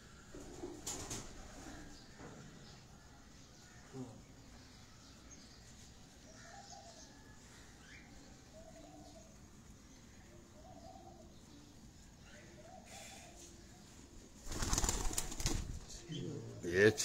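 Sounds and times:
pigeons cooing faintly: 0.0s - 17.0s.

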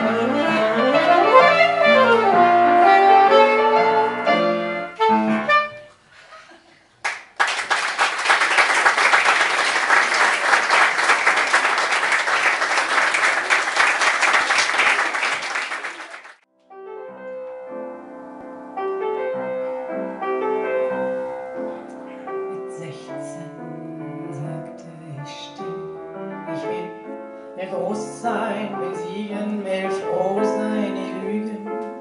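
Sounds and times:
piano playing notes and chords: 0.0s - 5.9s, 16.5s - 32.0s
audience applauding: 7.0s - 16.4s.

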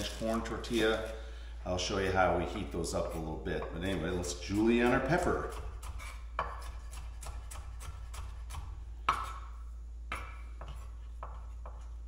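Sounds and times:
knife chopping on wooden board: 3.6s - 9.5s, 10.1s - 12.0s.

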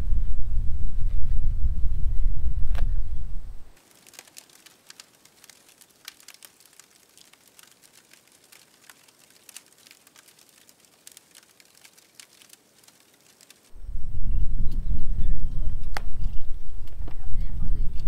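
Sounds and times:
wood fire crackling: 3.5s - 13.8s.

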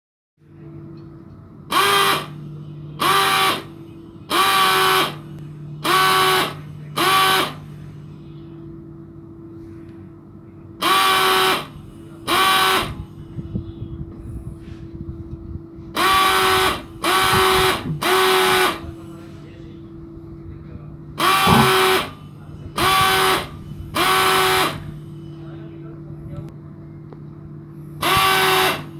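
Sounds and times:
steady low hum: 0.4s - 28.9s
pulse-jet engine buzzing bursts: 1.7s - 7.8s, 10.8s - 13.8s, 15.9s - 19.0s, 21.2s - 25.2s, 27.9s - 28.9s.

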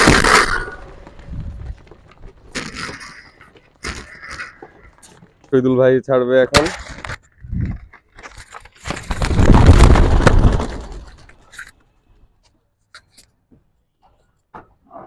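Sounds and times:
pigeon wingbeats flurry: 8.4s - 11.7s.

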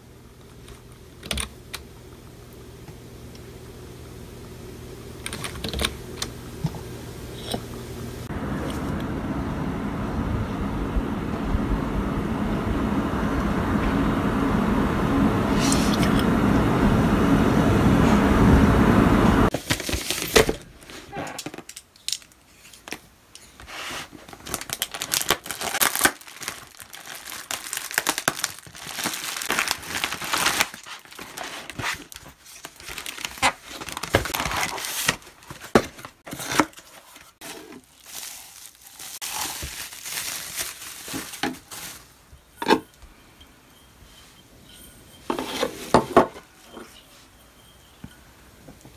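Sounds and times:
low rumbling noise: 6.8s - 19.5s
tearing packaging: 19.5s - 23.0s, 23.7s - 42.1s
plastic packaging crinkling: 19.5s - 42.3s.

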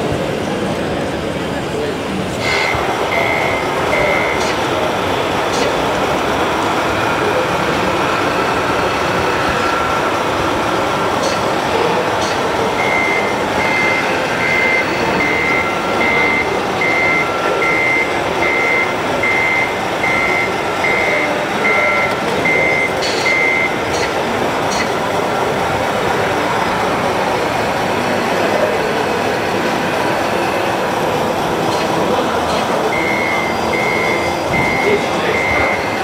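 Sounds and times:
hum of busy hall: 0.0s - 36.0s
short high reversing beeps: 2.4s - 4.6s, 12.7s - 24.0s, 32.8s - 36.0s.

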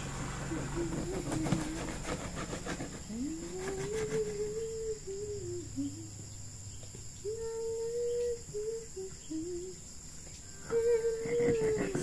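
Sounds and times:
high insect trill: 0.0s - 12.0s
soft wavering hummed tone: 3.1s - 12.0s.

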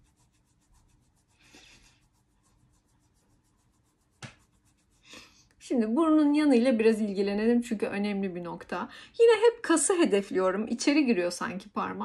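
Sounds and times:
fingertips rubbing skin: 0.0s - 5.5s.

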